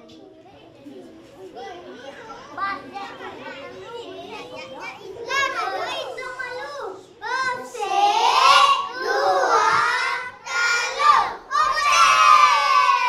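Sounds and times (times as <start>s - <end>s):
children chanting: 7.5s - 13.0s.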